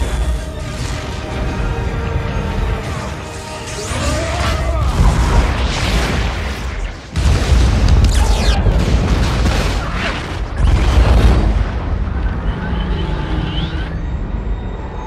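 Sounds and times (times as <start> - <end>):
explosion booms and rumbling: 4.0 - 12.8.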